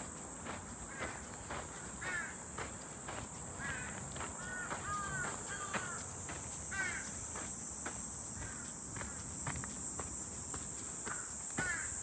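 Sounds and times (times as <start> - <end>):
footsteps on dirt trail: 0.0 - 12.0
insect drone: 0.0 - 12.0
bird calls: 3.6 - 6.1.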